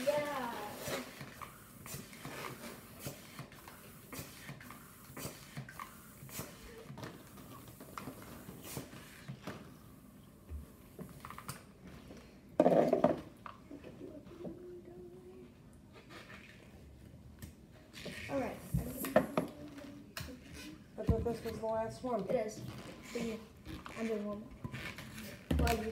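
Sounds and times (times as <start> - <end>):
rubbery balloon squeaks: 17.9 - 18.6, 22.6 - 25.9.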